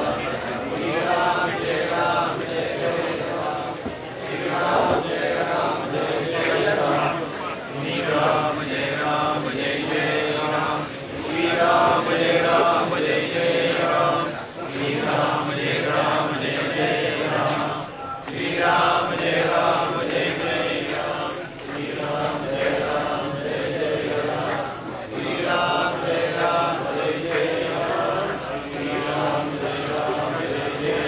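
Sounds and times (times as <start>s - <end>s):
voices chanting mantra: 0.0s - 31.0s.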